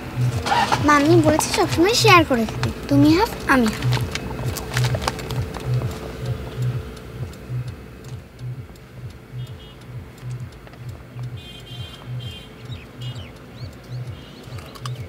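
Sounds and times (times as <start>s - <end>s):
high chirps: 0.0s - 15.0s
music with low pulse: 0.0s - 15.0s.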